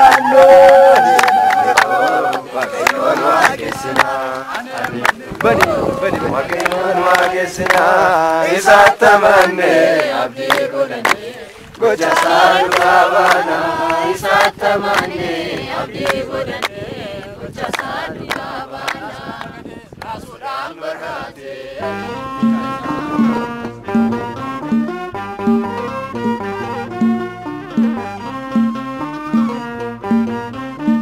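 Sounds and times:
hand claps: 0.0s - 16.8s, 17.6s - 20.2s, 25.5s - 26.4s, 27.6s - 28.0s
group singing a hymn: 0.0s - 24.2s.

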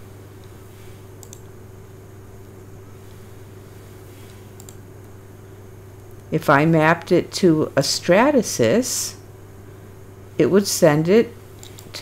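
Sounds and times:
steady low hum: 0.0s - 12.0s
computer mouse clicks: 1.2s - 1.5s, 4.2s - 4.8s, 11.6s - 11.9s.

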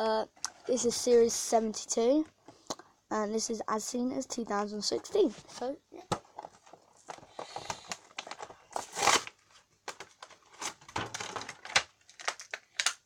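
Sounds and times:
plastic packaging crinkling: 6.2s - 13.0s
packaging crackling burst: 7.0s - 13.0s.

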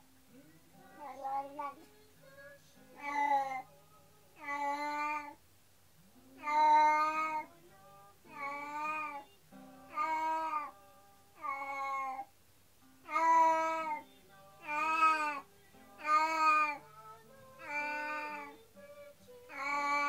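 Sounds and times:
cat meowing: 13.1s - 14.0s, 16.0s - 16.8s.

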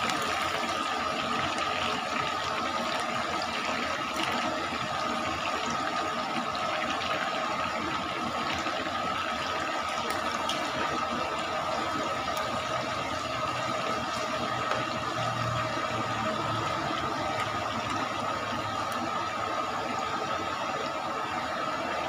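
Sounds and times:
oil bubbling and sizzling: 0.0s - 22.0s
steady high hum: 9.0s - 22.0s.

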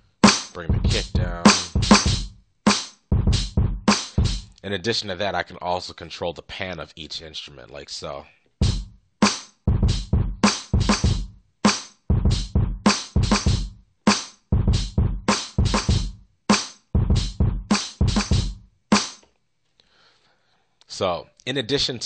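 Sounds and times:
drum loop: 0.2s - 4.6s, 8.6s - 19.2s.

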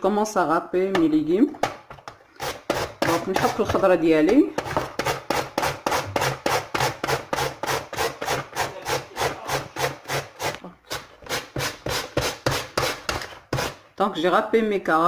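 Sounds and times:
carrot grating strokes: 2.3s - 3.4s, 4.7s - 13.8s.

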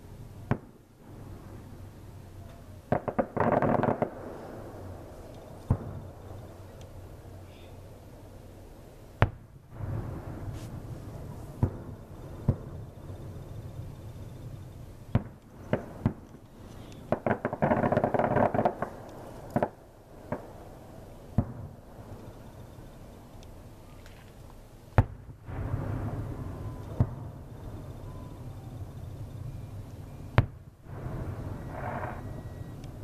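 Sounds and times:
rapid firework pops: 0.4s - 0.8s, 2.9s - 4.2s, 5.6s - 6.1s, 9.2s - 10.9s, 11.6s - 12.8s, 15.1s - 20.5s, 21.4s - 21.8s, 25.0s - 25.9s, 30.3s - 30.6s
firework shells bursting: 2.5s - 7.0s, 9.2s - 33.0s.

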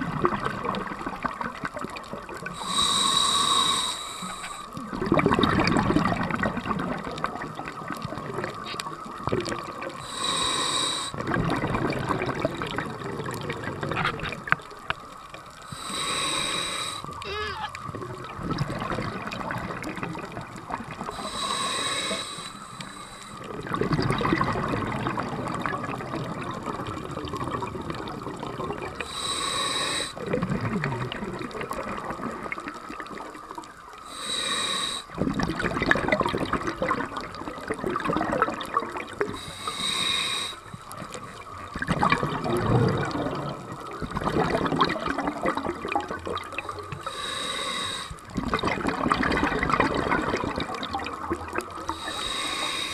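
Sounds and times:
regulator hissing inhales: 2.6s - 4.8s, 10.0s - 11.2s, 15.7s - 17.2s, 21.1s - 23.5s, 29.0s - 30.2s, 34.1s - 35.1s, 39.4s - 41.0s, 47.0s - 48.3s, 51.9s - 52.9s.

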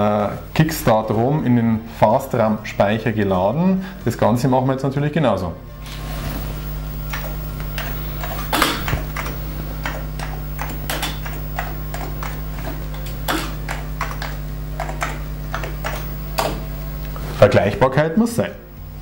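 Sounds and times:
steady low hum: 0.0s - 19.0s
keyboard keystrokes clicking: 7.1s - 16.6s.

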